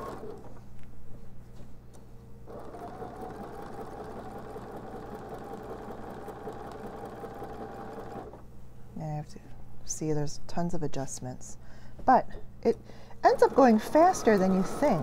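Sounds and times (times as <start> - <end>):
sewing machine stitching: 0.0 - 0.6, 2.5 - 8.4, 13.2 - 15.0.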